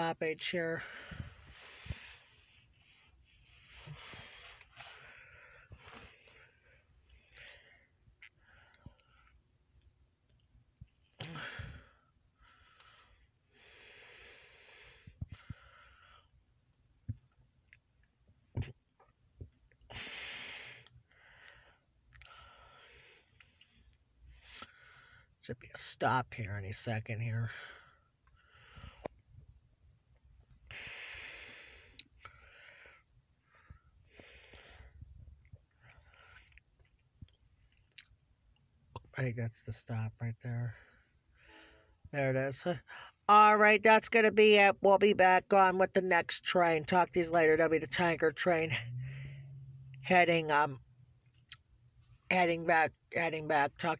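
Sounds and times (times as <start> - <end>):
person breathing: 0.8 - 9.4, 11.2 - 16.3, 30.7 - 35.0, 40.7 - 42.0, 48.7 - 49.8
person breathing and sighing: 11.2 - 16.3, 48.7 - 50.0.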